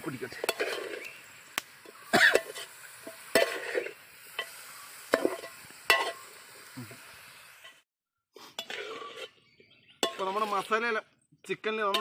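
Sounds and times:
faint sizzle: 0.0 - 7.8
metal spoon scraping pot: 0.3 - 1.1, 1.9 - 6.2, 8.6 - 10.7.

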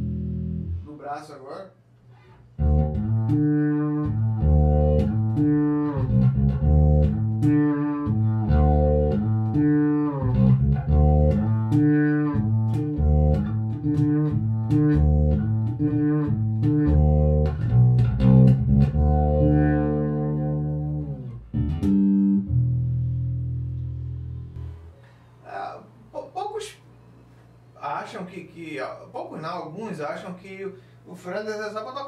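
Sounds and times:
fretless bass melodic line: 0.0 - 0.9, 2.6 - 25.0.

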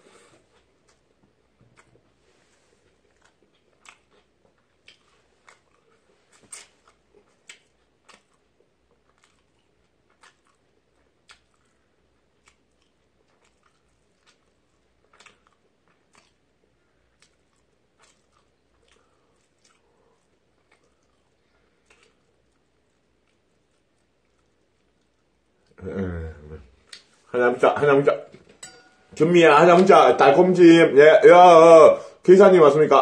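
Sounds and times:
wet chewing and mouth smacks: 0.5 - 2.2, 2.8 - 25.8, 26.8 - 27.2.

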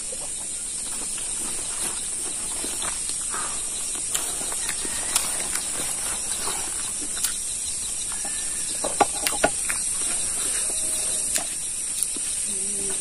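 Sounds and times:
insects droning: 0.0 - 13.0
wet chewing and lip smacks: 6.4 - 8.3, 9.2 - 12.4
sharp mouth clicks: 7.2 - 7.4.

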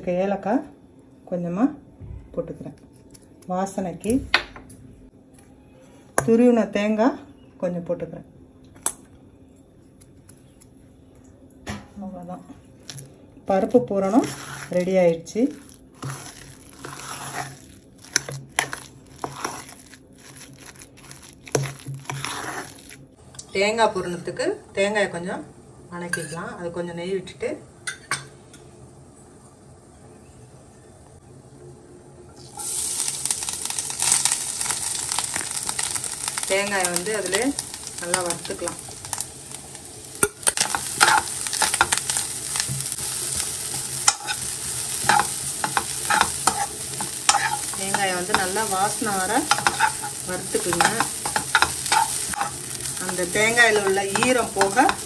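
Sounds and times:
coconut sizzling in pan: 12.7 - 23.2, 32.3 - 55.0
spoon mashing thick filling: 14.1 - 23.0, 40.2 - 55.0
spoon clinking against steel bowl: 49.5 - 52.6.

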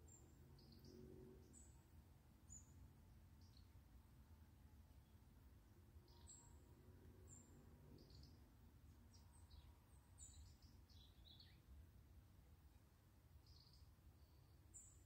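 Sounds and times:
small birds chirping: 0.0 - 3.8, 6.0 - 11.8, 13.4 - 15.0
low steady background rumble: 0.0 - 15.0.

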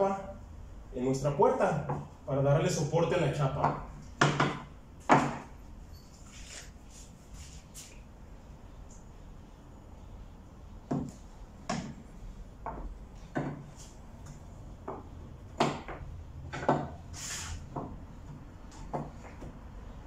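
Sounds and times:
wooden blocks knocking on wood: 3.6 - 5.5, 12.6 - 13.7, 14.8 - 17.0, 17.7 - 19.6.

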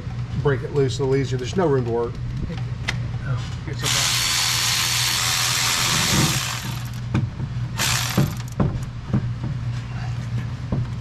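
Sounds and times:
handheld power tool spinning: 3.8 - 7.1, 7.8 - 8.6.

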